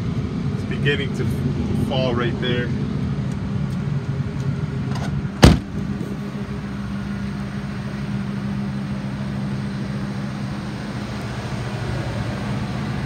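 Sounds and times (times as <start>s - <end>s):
truck engine idling: 0.0s - 13.0s
truck door slamming: 4.9s - 6.0s.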